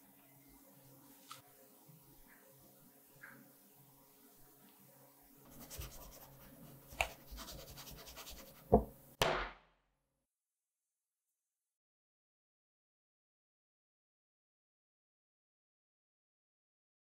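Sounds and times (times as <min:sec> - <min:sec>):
pan knocking on table: 0:08.7 - 0:09.6.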